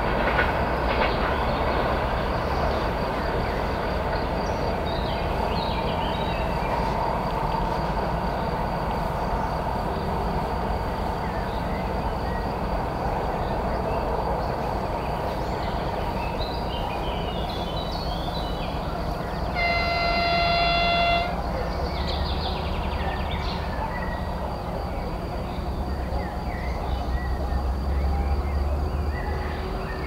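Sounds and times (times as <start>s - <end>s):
diesel locomotive engine rumbling: 0.0s - 30.0s
locomotive horn blast: 19.4s - 21.6s.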